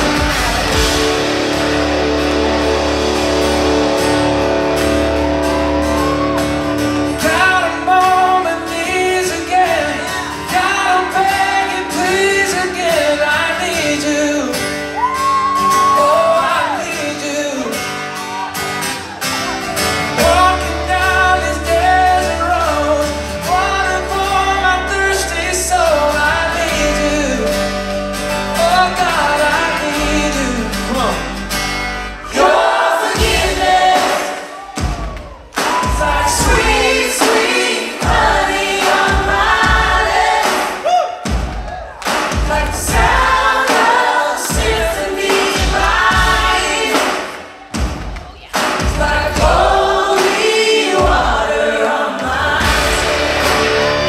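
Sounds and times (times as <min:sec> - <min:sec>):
deep bass note: 0:00.0 - 0:06.9
electric guitars: 0:00.0 - 0:16.0, 0:52.4 - 0:54.0
drums: 0:00.0 - 0:54.0
person singing: 0:07.1 - 0:18.0, 0:20.1 - 0:31.4, 0:35.6 - 0:41.3, 0:48.3 - 0:54.0.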